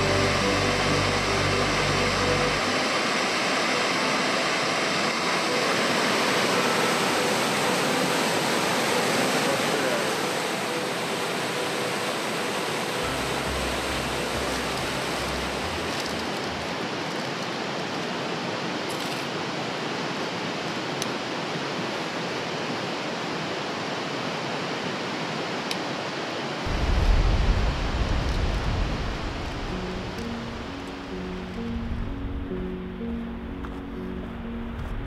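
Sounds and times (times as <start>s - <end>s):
steady rushing outdoor noise: 0.0s - 35.0s
low rumble: 26.7s - 35.0s.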